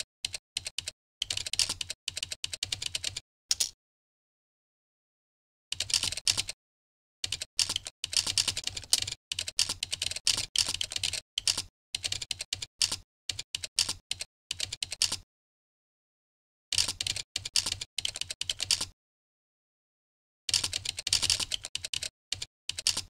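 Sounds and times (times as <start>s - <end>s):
typing on computer keyboard: 0.2s - 3.8s, 5.7s - 6.6s, 7.2s - 15.2s, 16.7s - 19.0s, 20.5s - 23.0s.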